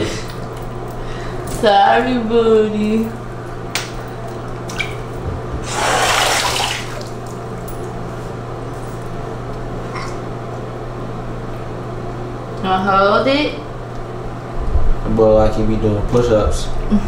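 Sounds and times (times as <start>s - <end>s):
steady low hum: 0.0s - 17.0s
bathwater splashing and pouring: 5.6s - 7.4s.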